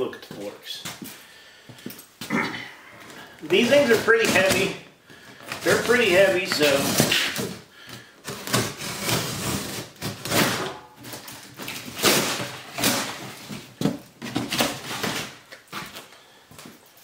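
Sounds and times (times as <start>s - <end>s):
cardboard and tape tearing: 3.4s - 4.8s, 5.5s - 7.6s, 8.2s - 16.1s.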